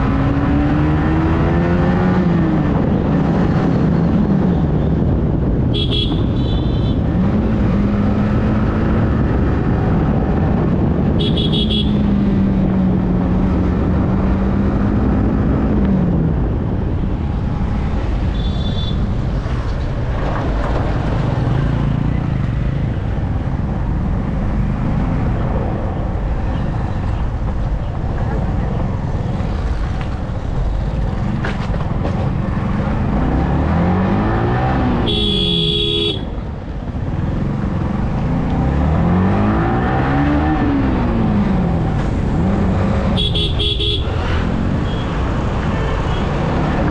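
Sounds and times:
wind rumble: 0.0s - 35.0s.

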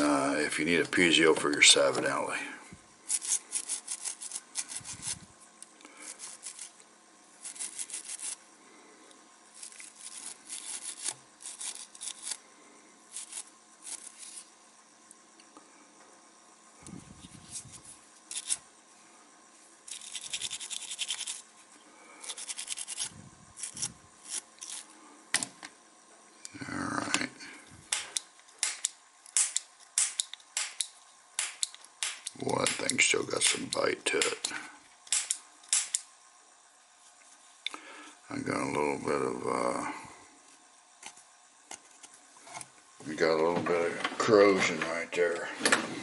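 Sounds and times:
brush scrubbing: 3.1s - 5.2s, 6.1s - 6.8s, 7.4s - 8.4s, 9.6s - 12.4s.

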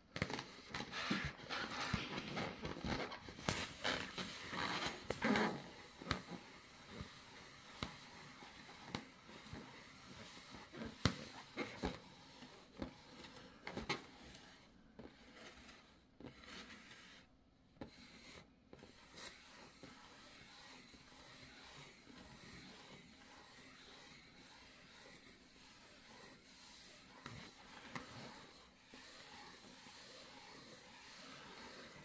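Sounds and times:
claws tapping balloon: 0.1s - 7.2s, 7.8s - 12.2s
claws scraping rubber balloon: 0.1s - 32.0s.

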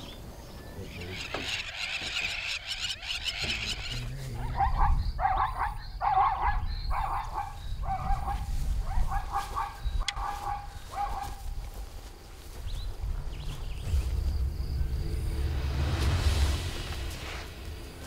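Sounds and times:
zebra barking: 0.9s - 11.4s.

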